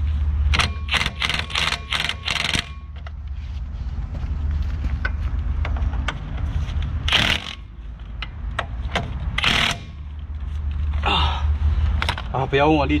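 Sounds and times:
steady low hum: 0.0 - 13.0
impact wrench bursts: 0.5 - 3.0, 7.0 - 7.8, 9.3 - 10.2.

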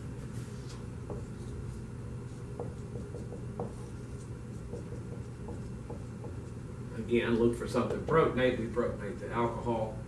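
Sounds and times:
steady low hum: 0.0 - 10.0
marker writing on whiteboard: 0.6 - 6.7.

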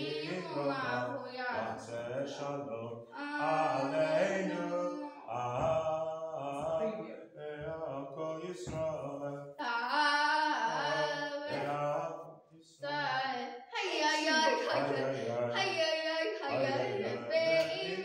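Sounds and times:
person chanting a prayer melody: 0.0 - 9.8, 10.4 - 12.2, 14.6 - 15.6, 16.4 - 18.0.

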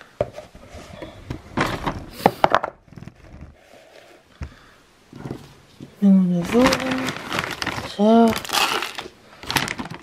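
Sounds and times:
handling rustling and knocks: 4.4 - 7.9.

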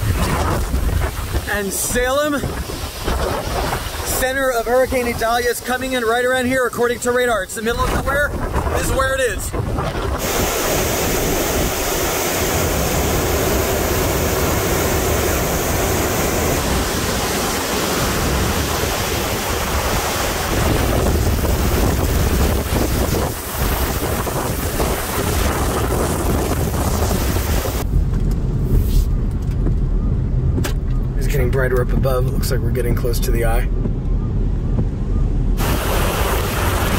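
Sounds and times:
strong wind through trees: 0.0 - 29.2
wind buffeting on microphone: 0.0 - 36.9
muffled low rumble inside car: 27.8 - 35.6.

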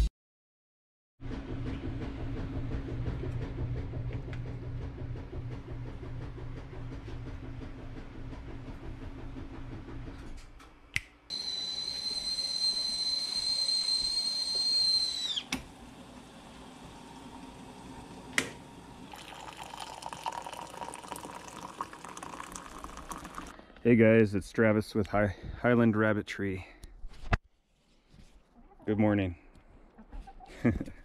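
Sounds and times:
kettle whistling: 11.3 - 23.6
water heating rumble: 11.3 - 24.9.

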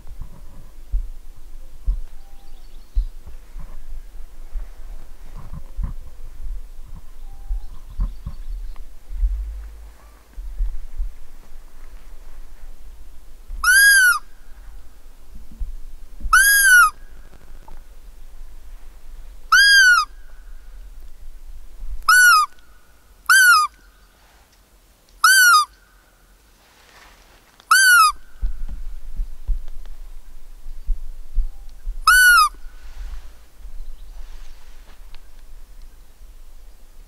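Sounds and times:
low bumps: 0.0 - 19.5, 28.3 - 36.4
deer call squeaks: 13.6 - 14.2, 16.3 - 17.0, 19.5 - 20.1, 22.1 - 22.5, 23.3 - 23.8, 25.2 - 25.8, 27.7 - 28.2, 32.1 - 32.6.

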